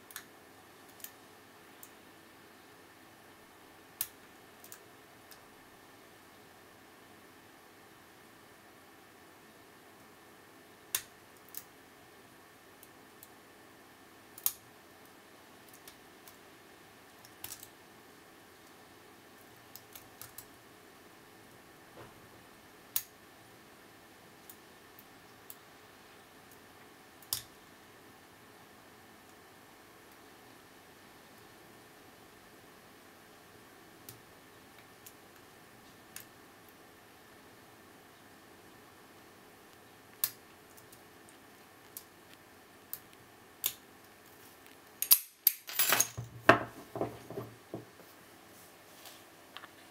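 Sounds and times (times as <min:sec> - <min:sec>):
faint steady hiss: 0:00.0 - 0:49.9
padlock shackle clattering open: 0:45.0 - 0:46.2.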